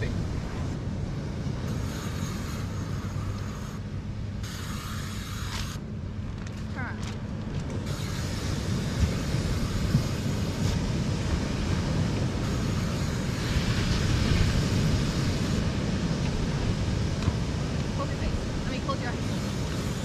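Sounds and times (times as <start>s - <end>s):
surf washing on beach: 0.0s - 4.4s, 6.7s - 20.0s
wind rumbling on microphone: 0.0s - 20.0s
hiss: 7.9s - 10.8s.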